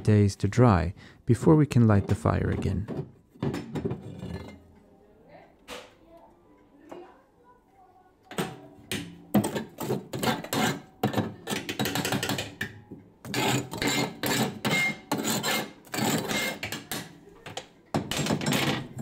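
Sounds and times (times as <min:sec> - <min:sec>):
hand tool scraping on stove: 0:09.4 - 0:12.2, 0:13.3 - 0:16.8.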